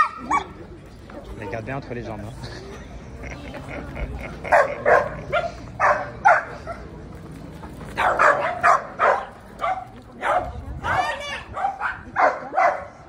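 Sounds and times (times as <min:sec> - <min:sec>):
dog barking: 0:04.5 - 0:06.8, 0:08.0 - 0:13.0.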